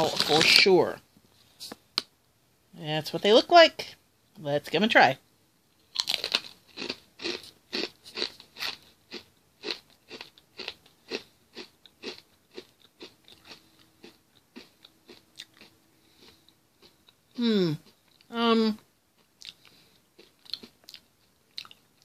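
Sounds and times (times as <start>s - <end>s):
person chewing crunchy chips: 0.0s - 0.7s, 5.8s - 18.3s, 19.2s - 22.0s.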